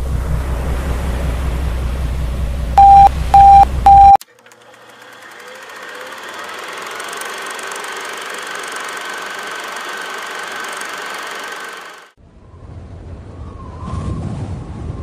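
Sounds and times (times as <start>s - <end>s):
mechanical rattling: 4.2s - 12.2s.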